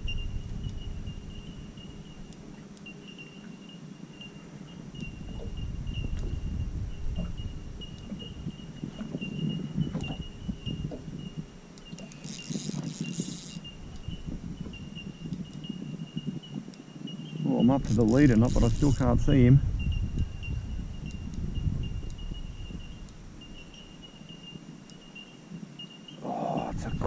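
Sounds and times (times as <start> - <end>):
faint pulsing high-pitched tone: 0.0 - 27.0
fishing reel rumbling and knocking: 5.0 - 16.7, 17.6 - 24.4.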